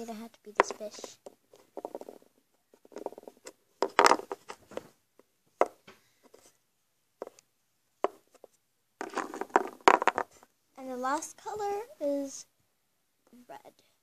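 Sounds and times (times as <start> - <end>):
plastic toys clicking and knocking: 0.5 - 4.8, 7.2 - 10.4.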